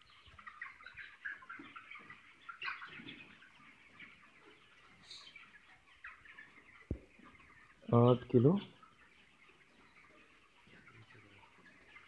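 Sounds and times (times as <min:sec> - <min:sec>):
chickens chirping and clucking: 0:00.0 - 0:12.0.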